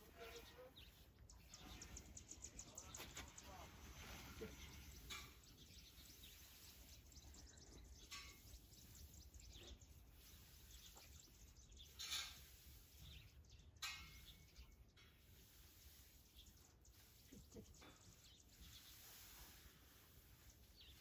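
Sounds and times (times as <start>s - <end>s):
soft rustles: 15.4s - 21.0s.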